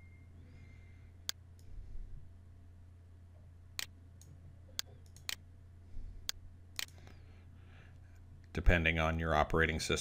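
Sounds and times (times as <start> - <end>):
low electrical hum: 0.0 - 10.0
mouse buttons clicking: 6.3 - 7.1.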